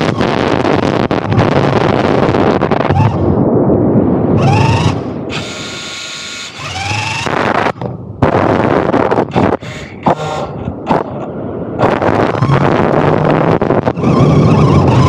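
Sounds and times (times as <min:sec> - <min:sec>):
electric motor whining: 0:00.0 - 0:03.2, 0:04.4 - 0:11.1, 0:11.8 - 0:15.0
tyres and wind on sand: 0:00.0 - 0:15.0.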